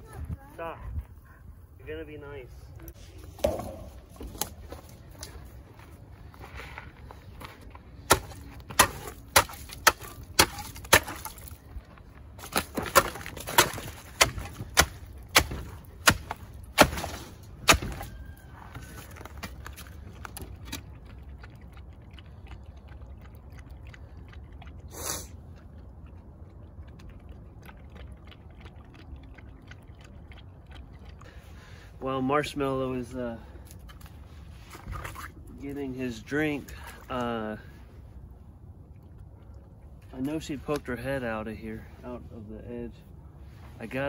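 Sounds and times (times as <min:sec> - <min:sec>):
ice clinking and water sloshing: 0:07.8 - 0:38.2
spade striking ice: 0:08.1 - 0:11.6, 0:12.4 - 0:18.1
dog lapping water: 0:19.9 - 0:31.6.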